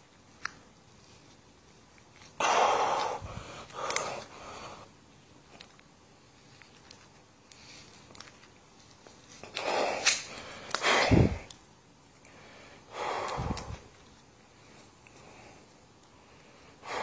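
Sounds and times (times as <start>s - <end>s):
man breathing hard: 2.4s - 4.9s, 9.5s - 11.5s, 12.2s - 14.0s, 15.1s - 17.0s
card deck crackling and snapping: 3.0s - 4.3s, 5.5s - 11.6s.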